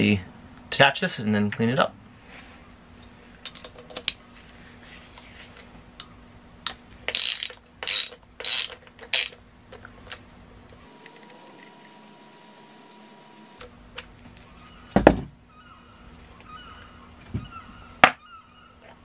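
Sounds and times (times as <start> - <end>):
socket ratchet clicking: 7.1 - 9.4.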